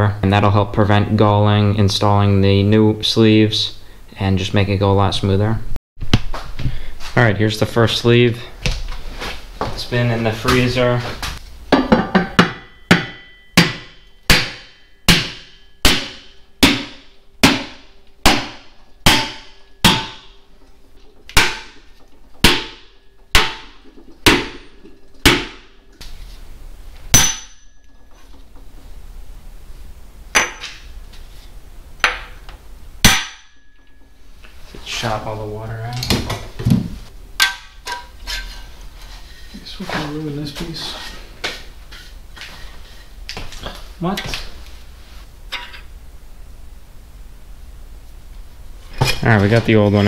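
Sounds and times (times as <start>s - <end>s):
hammer striking wooden block: 11.8s - 20.4s, 21.3s - 25.7s, 33.0s - 34.0s.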